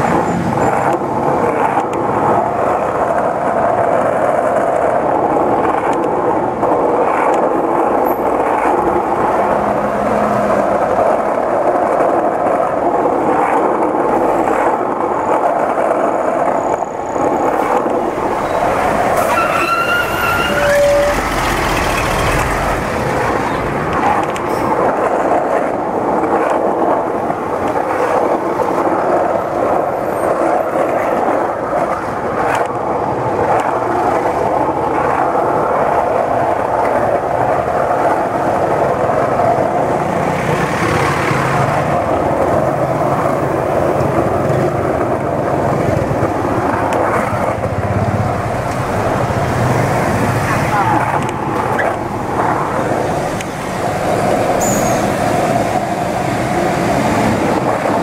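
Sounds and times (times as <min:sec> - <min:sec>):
city road traffic: 0:00.0 - 0:58.0.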